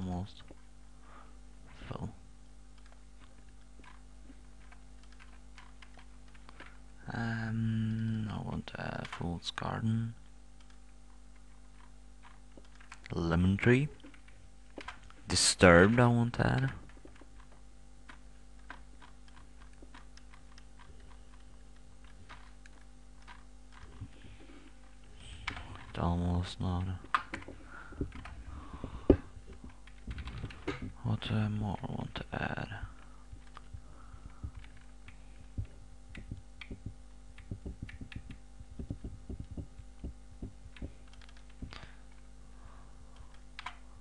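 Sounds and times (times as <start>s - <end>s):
steady low hum: 0.0s - 44.0s
computer mouse clicking: 2.8s - 4.0s, 4.6s - 6.8s, 10.6s - 13.2s, 14.0s - 25.9s, 26.8s - 30.9s, 33.0s - 42.3s, 43.2s - 43.8s.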